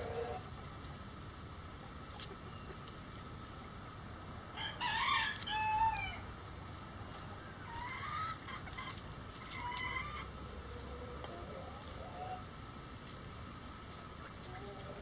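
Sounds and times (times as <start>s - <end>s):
chickens clucking: 0.0s - 0.7s, 7.6s - 12.5s
rooster crowing: 4.6s - 6.2s.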